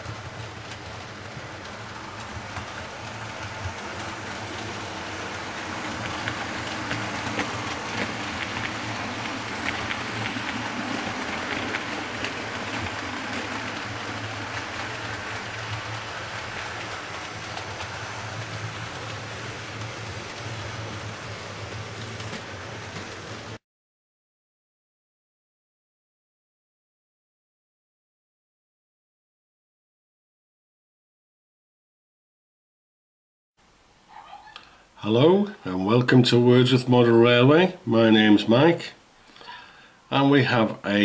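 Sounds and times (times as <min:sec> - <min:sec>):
model train wheels rumbling: 0:00.0 - 0:23.6.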